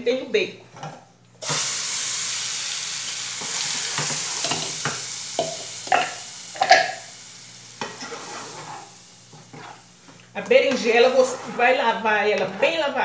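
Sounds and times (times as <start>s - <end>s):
food sizzling in a saucepan: 1.4s - 13.0s
spoon scraping in a pan: 7.8s - 13.0s.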